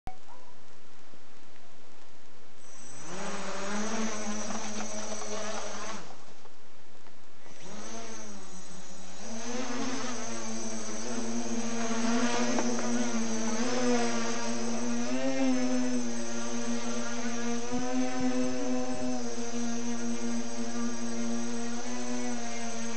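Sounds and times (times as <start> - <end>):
drone motors and propellers buzzing: 2.6 - 6.6, 7.4 - 22.9.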